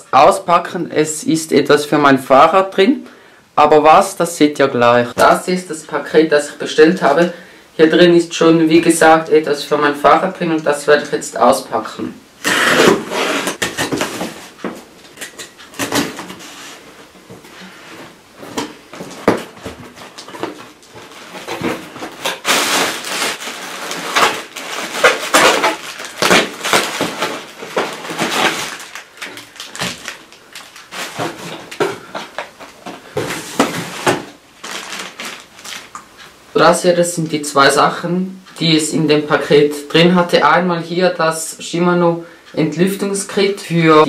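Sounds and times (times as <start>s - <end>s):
cardboard and tape tearing: 12.4s - 14.6s, 19.1s - 32.4s, 33.4s - 36.0s
plastic packing pillows crinkling: 12.4s - 36.3s.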